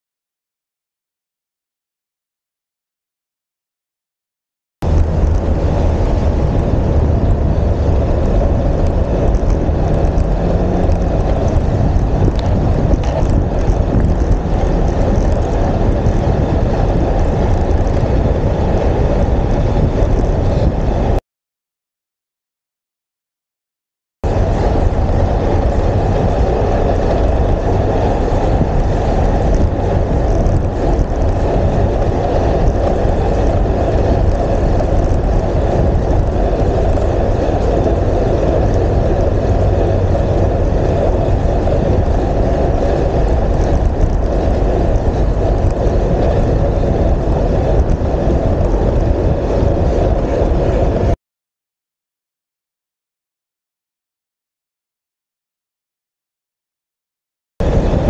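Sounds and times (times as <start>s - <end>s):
wind rushing over microphone: 4.8s - 21.2s, 24.2s - 51.2s, 57.6s - 58.0s.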